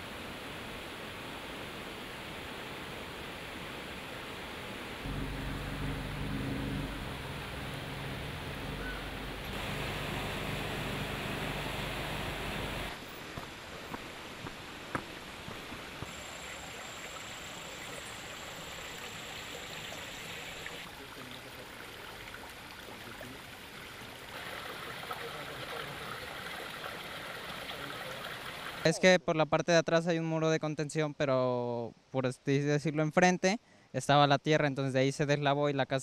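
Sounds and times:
river rushing: 0.0s - 20.9s, 24.3s - 28.9s
thin high whine: 5.0s - 13.2s.

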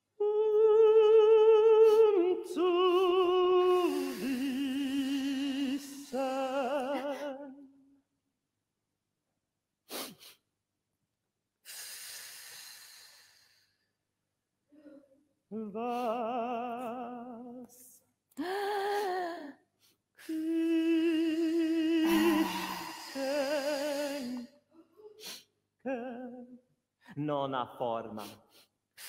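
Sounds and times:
woman singing wordless notes: 0.2s - 7.7s, 18.4s - 19.6s, 20.2s - 24.5s
long breathy hiss: 11.6s - 13.8s, 22.0s - 24.5s.

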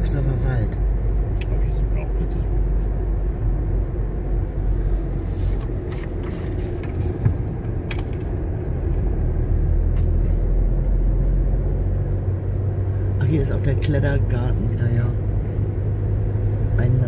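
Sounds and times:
car driving road and engine rumble: 0.0s - 17.0s.

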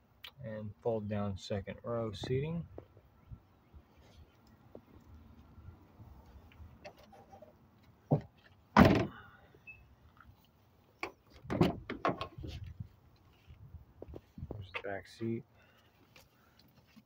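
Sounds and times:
car door opening clicks and thumps: 8.1s - 9.2s, 11.0s - 12.4s
car liftgate slamming shut: 8.8s - 9.2s.

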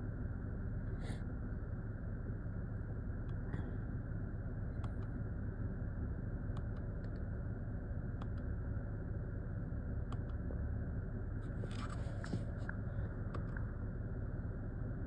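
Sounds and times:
low rumble inside car cabin: 0.0s - 15.0s.

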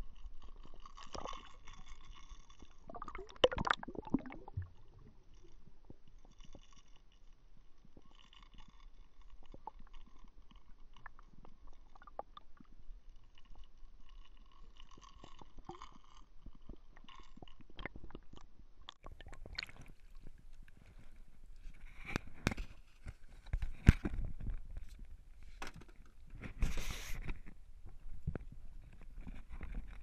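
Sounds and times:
muffled underwater crackling: 0.0s - 25.3s
water lapping against boat hull: 14.4s - 21.0s.

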